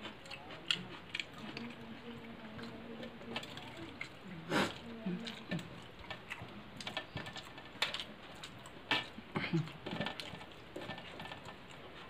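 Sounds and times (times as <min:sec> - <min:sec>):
wet chewing and lip smacks: 0:00.0 - 0:02.2.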